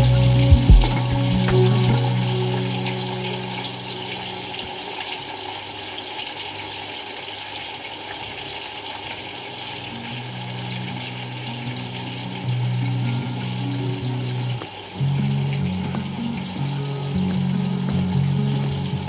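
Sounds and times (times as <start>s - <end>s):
low background music: 0.0s - 4.8s.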